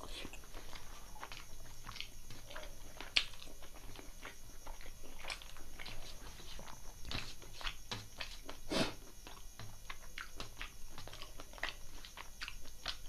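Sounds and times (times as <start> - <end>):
wet chewing with smacks: 0.2 - 13.0.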